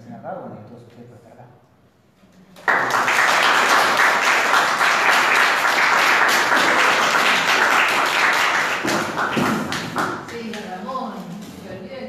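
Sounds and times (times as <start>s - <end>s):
audience applauding: 2.6s - 10.3s.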